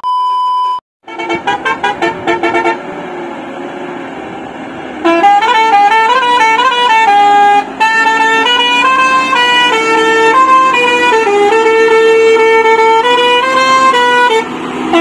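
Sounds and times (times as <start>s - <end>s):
truck musical horn playing tune: 1.0s - 3.0s, 5.0s - 15.0s.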